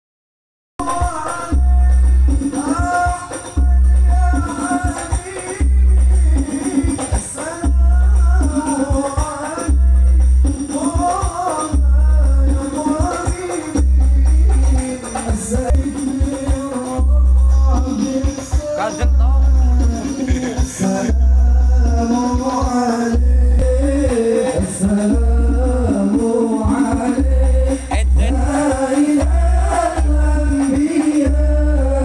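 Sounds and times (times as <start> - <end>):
loud music with singing: 0.8 - 32.0.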